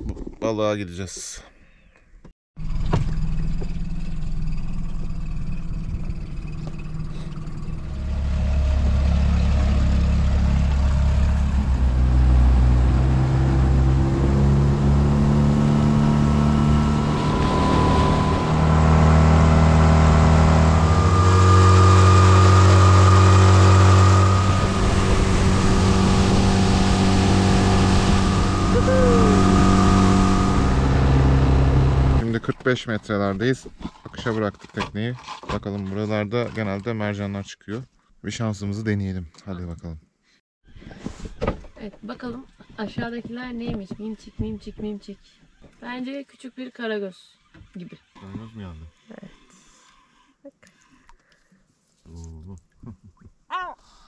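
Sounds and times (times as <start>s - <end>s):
outboard motor running: 2.6s - 32.6s
water rushing along hull: 8.6s - 32.2s.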